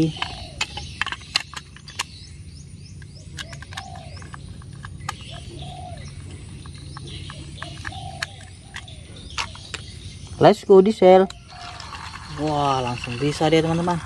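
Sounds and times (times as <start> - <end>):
dove cooing: 0.0 - 1.4, 3.4 - 9.8
plastic toy being handled: 11.2 - 14.0.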